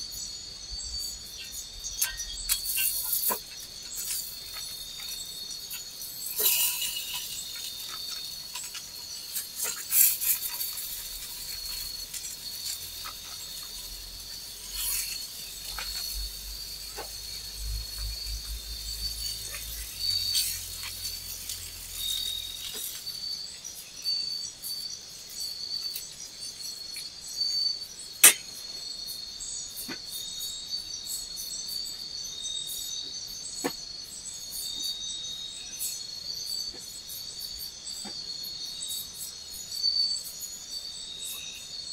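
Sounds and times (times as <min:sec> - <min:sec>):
insect chorus drone: 0:00.0 - 0:41.9.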